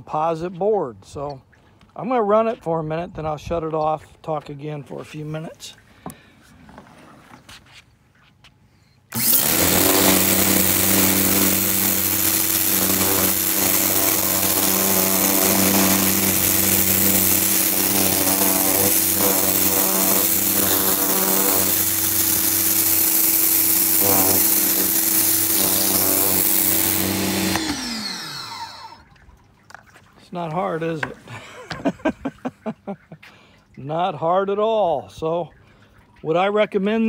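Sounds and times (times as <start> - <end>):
water jet spraying on deck boards: 9.1 - 29.0
pressure washer motor hum: 9.1 - 29.1.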